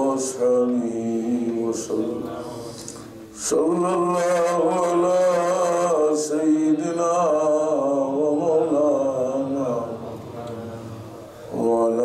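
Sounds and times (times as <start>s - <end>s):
man chanting: 0.0s - 12.0s.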